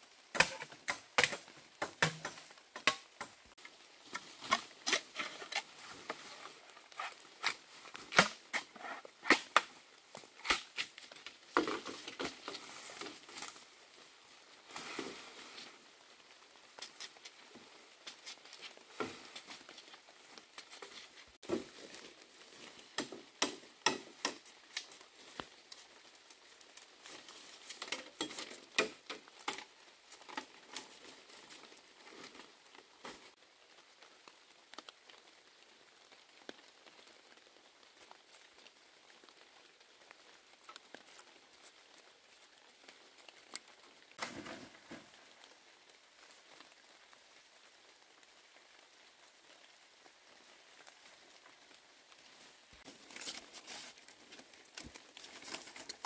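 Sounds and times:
machete chopping bamboo: 0:00.3 - 0:03.4, 0:07.4 - 0:09.7, 0:10.4 - 0:10.9, 0:23.0 - 0:24.5.

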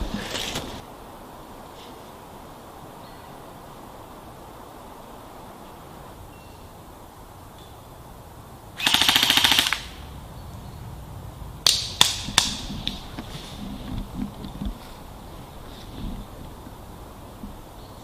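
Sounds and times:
airsoft gun full-auto burst: 0:08.8 - 0:09.9.

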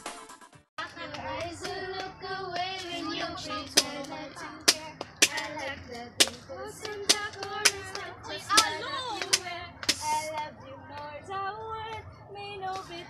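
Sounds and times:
young female voices singing: 0:00.8 - 0:13.0
sharp claps: 0:00.9 - 0:11.1.

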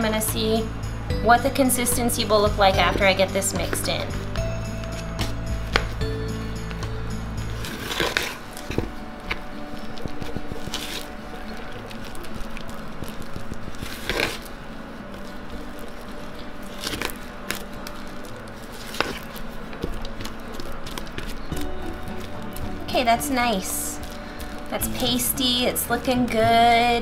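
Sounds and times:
utensil squishing through paste: 0:07.6 - 0:23.1.

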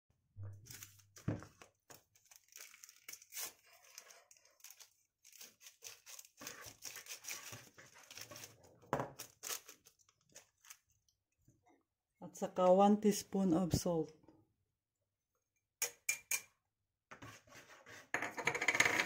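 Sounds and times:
paper sachets tearing and crinkling: 0:00.6 - 0:01.3, 0:02.1 - 0:10.8.

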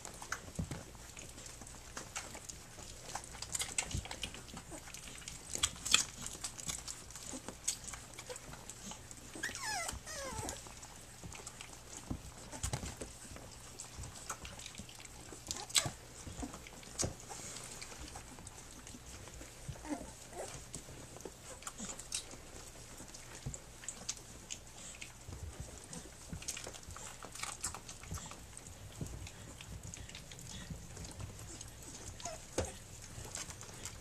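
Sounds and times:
dog licking puppies: 0:00.0 - 0:34.0
puppies suckling: 0:00.0 - 0:34.0
faint puppy squeaks: 0:08.2 - 0:10.8, 0:19.7 - 0:22.0, 0:31.5 - 0:33.9.

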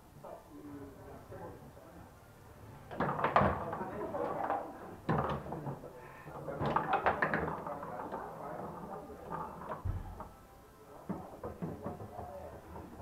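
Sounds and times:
foosball ball struck: 0:02.9 - 0:05.8
foosball rods clacking: 0:02.9 - 0:10.3, 0:11.0 - 0:13.0.

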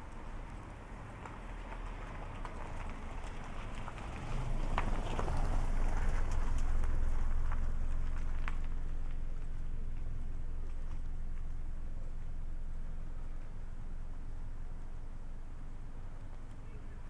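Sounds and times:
car driving past: 0:00.1 - 0:08.9.

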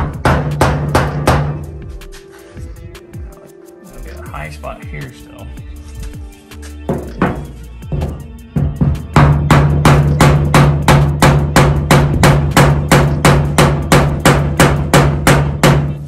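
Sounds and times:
hammer striking wooden block: 0:00.0 - 0:01.6, 0:06.9 - 0:16.0.

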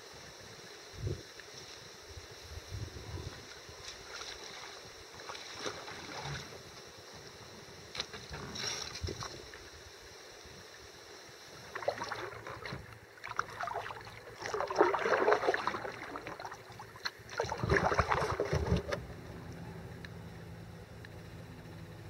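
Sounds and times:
kayak paddle splashing: 0:03.9 - 0:06.6, 0:11.6 - 0:19.0.

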